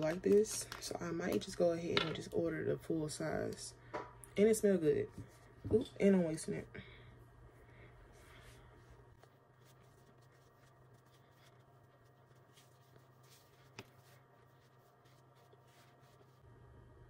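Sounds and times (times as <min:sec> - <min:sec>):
soft rubbing and handling noises: 0:04.4 - 0:16.5.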